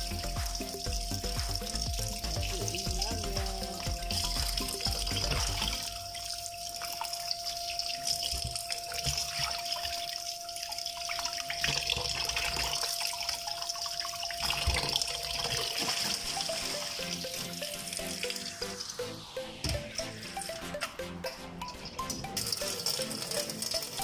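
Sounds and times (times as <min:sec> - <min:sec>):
tap water running into sink: 0:00.0 - 0:19.0, 0:22.2 - 0:24.0
small knocks and drips: 0:04.4 - 0:16.3.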